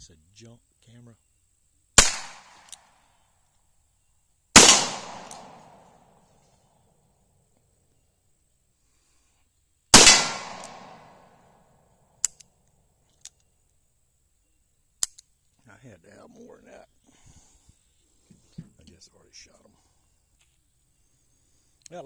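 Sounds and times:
revolver shots with echo: 2.0 - 2.7, 4.6 - 5.8, 10.0 - 11.3.

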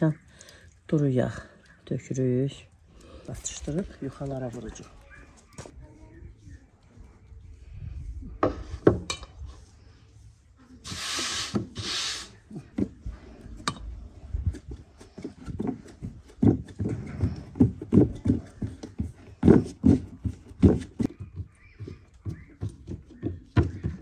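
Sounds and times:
short hissing rustles: 10.8 - 12.4.

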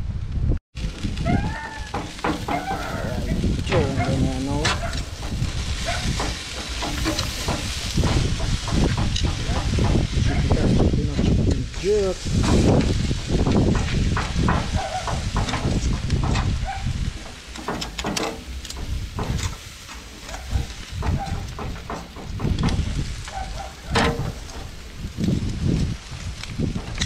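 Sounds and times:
wind rumbling on microphone: 0.0 - 27.0
distant cries: 1.2 - 7.6, 14.5 - 15.5, 20.0 - 22.1
metal tongs clacking on grill: 1.9 - 10.4, 14.1 - 22.3.

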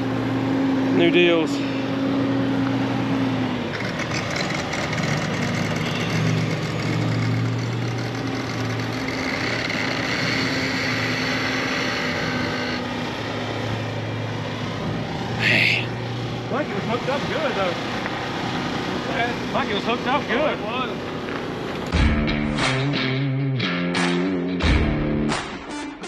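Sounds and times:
engine idling: 0.0 - 22.8.

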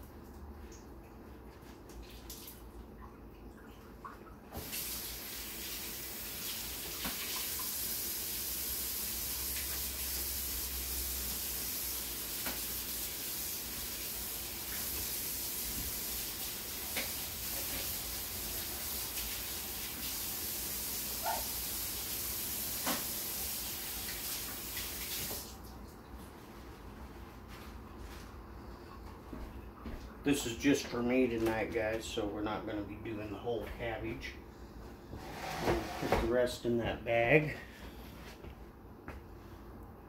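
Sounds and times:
tap water running into sink: 4.5 - 25.6.

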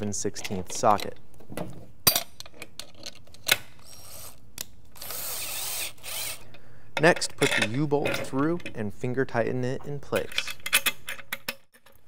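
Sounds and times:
cordless screwdriver running: 5.0 - 6.4.

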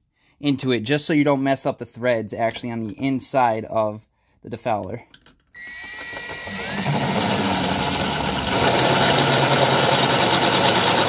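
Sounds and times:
cordless drill boring through metal: 5.6 - 11.0.

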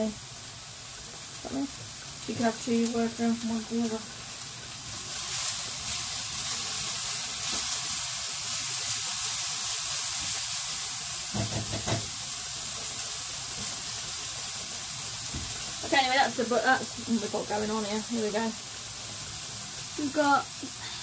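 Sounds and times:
food sizzling in a pan: 0.0 - 21.0.

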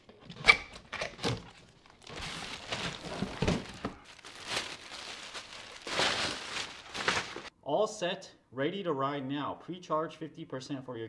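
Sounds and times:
cardboard and plastic rustling: 0.8 - 7.5.

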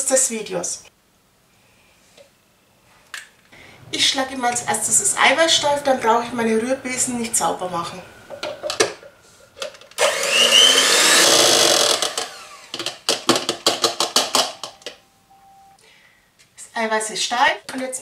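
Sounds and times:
electric hand mixer whining: 10.0 - 12.8.

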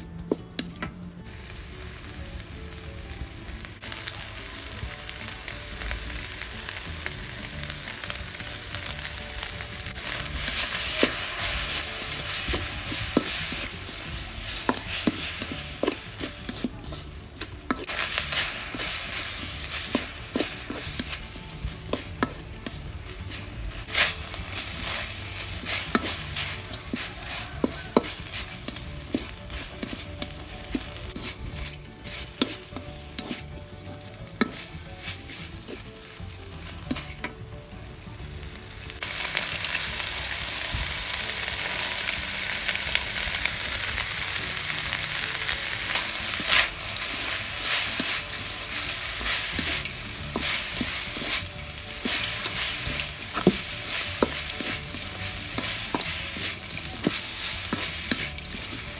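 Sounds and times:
meat frying sizzle: 0.0 - 58.9
spatula scraping a wok: 7.7 - 37.4, 45.4 - 58.9.

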